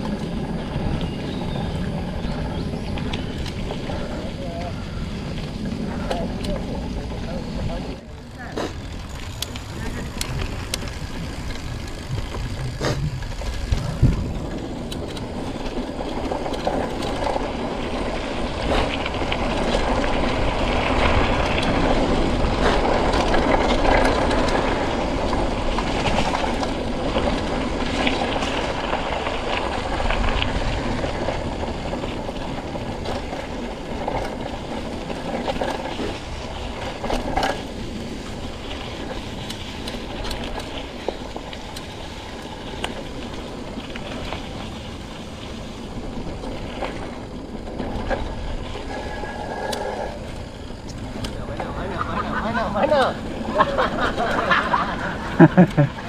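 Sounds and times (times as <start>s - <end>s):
bike rattling and clattering: 0.0s - 56.0s
bike tyre noise on dirt: 0.0s - 56.0s
bike knocking on bumps: 8.5s - 49.4s.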